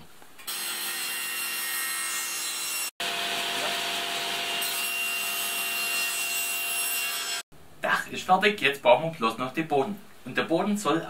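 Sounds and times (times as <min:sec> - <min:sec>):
table saw cutting wood: 0:00.4 - 0:07.4.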